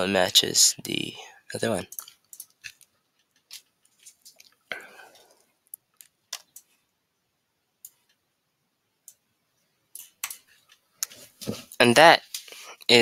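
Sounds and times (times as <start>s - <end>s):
computer mouse clicks: 1.9s - 3.6s, 5.7s - 6.8s, 7.8s - 8.2s, 9.0s - 9.2s, 9.9s - 11.1s.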